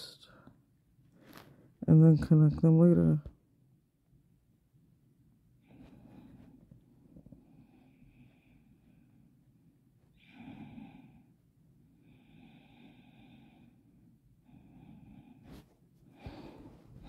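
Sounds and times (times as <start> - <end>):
person breathing: 5.6 - 9.5, 10.1 - 17.0.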